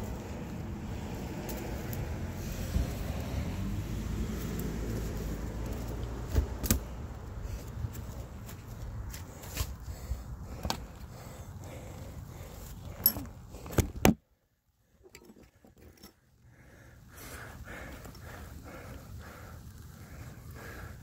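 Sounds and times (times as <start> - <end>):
low outdoor rumble: 0.0 - 21.0.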